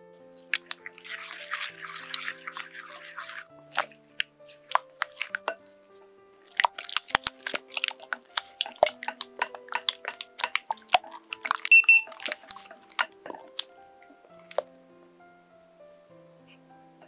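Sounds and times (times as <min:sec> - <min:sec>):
soft background music: 0:00.0 - 0:17.0
utensils clinking against a bowl: 0:00.4 - 0:13.7.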